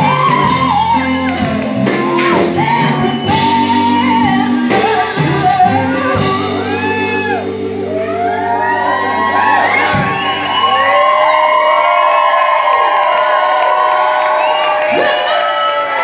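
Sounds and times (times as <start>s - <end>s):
woman singing: 0.0s - 7.8s
electric bass guitar: 0.0s - 10.9s
drums: 0.0s - 16.0s.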